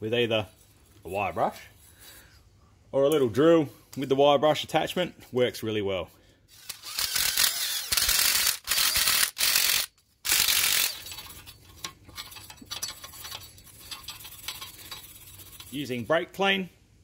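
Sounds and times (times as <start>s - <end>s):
drill with wire brush scrubbing: 6.5s - 16.1s
scraping and light clicks: 10.9s - 16.0s.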